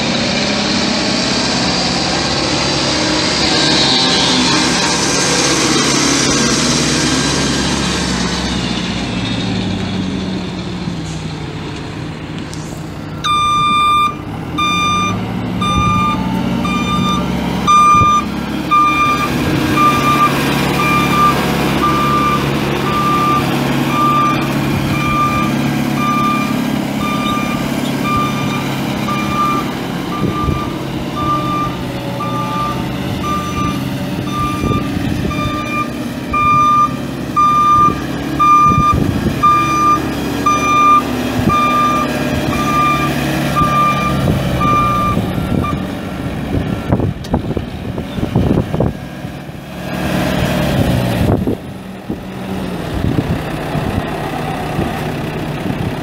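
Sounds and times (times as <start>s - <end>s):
diesel engine running: 0.0s - 56.0s
backup alarm beeping: 13.2s - 45.8s.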